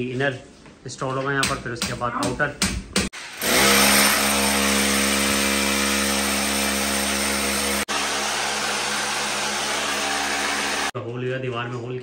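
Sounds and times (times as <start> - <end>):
electric drill boring into wall: 3.2 - 10.9.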